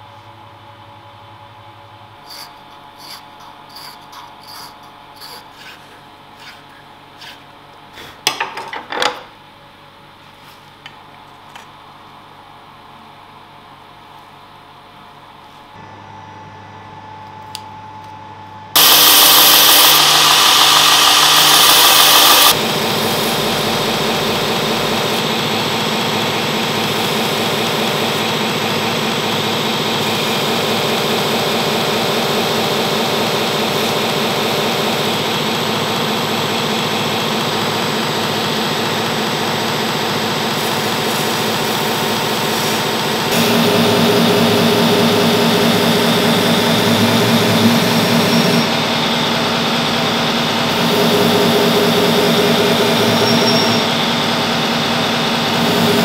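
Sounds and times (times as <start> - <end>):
belt grinder grinding steel: 18.8 - 22.6.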